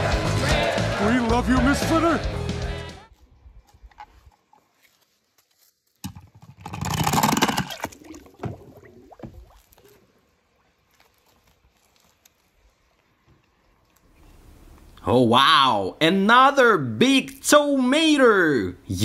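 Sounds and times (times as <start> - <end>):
water splashing in plastic tub: 6.1 - 10.9
water trickling: 7.6 - 11.3.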